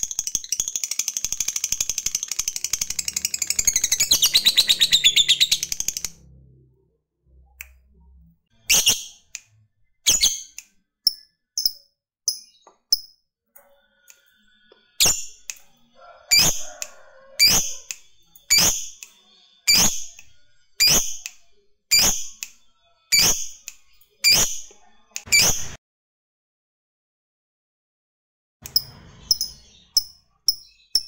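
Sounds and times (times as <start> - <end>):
lovebird chirping: 0.0 - 6.2, 8.5 - 13.1, 28.6 - 31.0.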